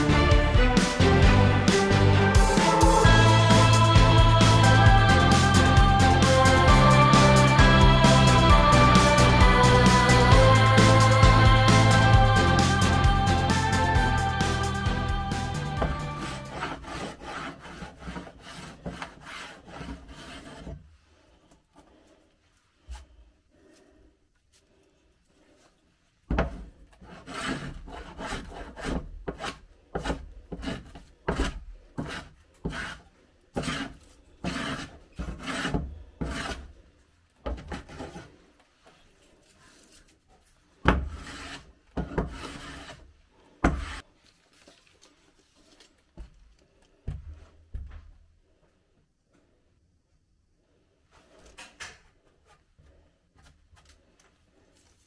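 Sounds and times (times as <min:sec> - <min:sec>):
hand tool rasping wood: 0:02.4 - 0:20.9, 0:26.4 - 0:36.8, 0:37.5 - 0:38.5, 0:40.8 - 0:44.0.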